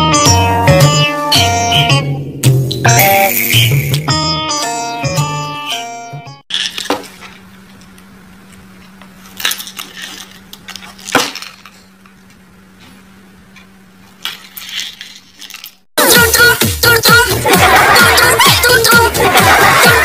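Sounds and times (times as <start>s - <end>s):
loud music: 0.0s - 6.4s, 16.0s - 20.0s
steady low hum: 6.5s - 15.9s.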